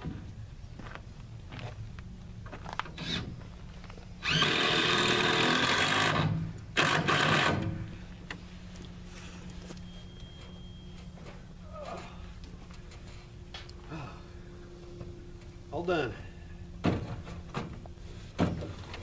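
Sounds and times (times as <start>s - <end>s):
power drill driving screw: 4.2s - 7.7s.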